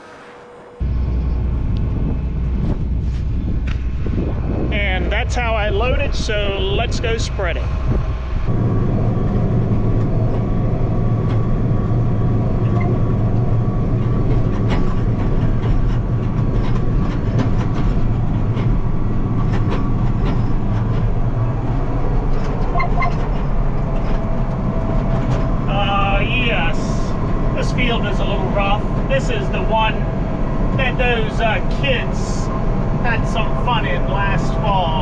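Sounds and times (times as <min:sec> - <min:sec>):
farm vehicle engine running: 0:00.0 - 0:35.0
clanks and rattles: 0:08.5 - 0:25.7.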